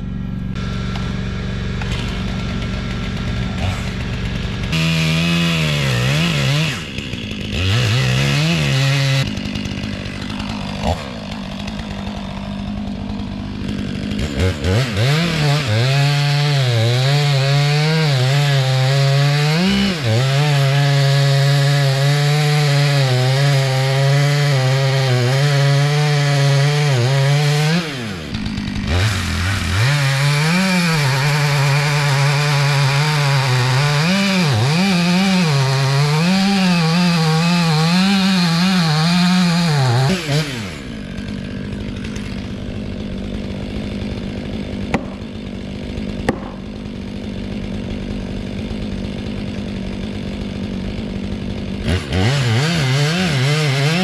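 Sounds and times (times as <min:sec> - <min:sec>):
chainsaw revving and cutting wood: 0:00.0 - 0:54.0.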